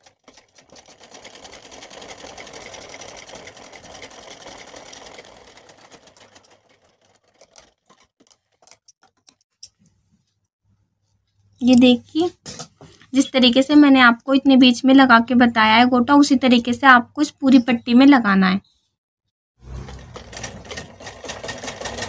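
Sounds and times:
sewing machine stitching: 0.0s - 9.4s, 19.6s - 22.0s.

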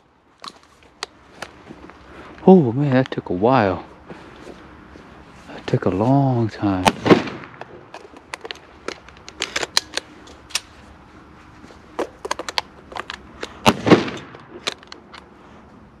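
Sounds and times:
dry twigs clicking and crackling: 5.5s - 10.8s.

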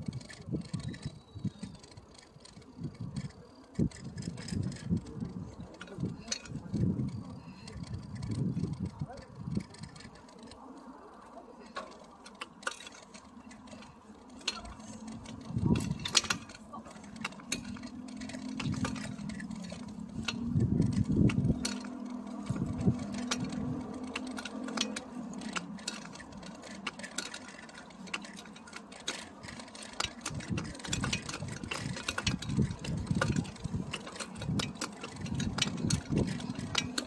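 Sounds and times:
bicycle rattling over bricks: 0.0s - 37.0s.

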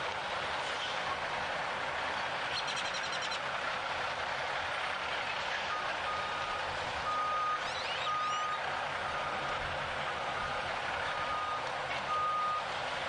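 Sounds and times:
steady outdoor hiss: 0.0s - 13.0s
vehicle reversing alarm beeping: 5.7s - 12.7s.

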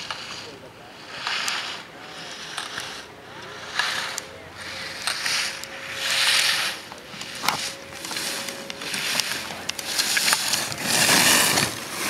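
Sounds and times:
skis scraping on snow: 0.0s - 12.0s.

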